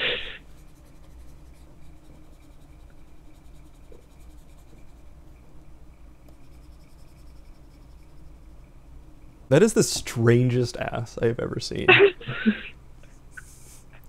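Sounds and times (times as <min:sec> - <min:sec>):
scratchy rubbing of drawing strokes: 0:00.0 - 0:05.2, 0:06.3 - 0:08.5
low electrical hum: 0:00.0 - 0:14.0.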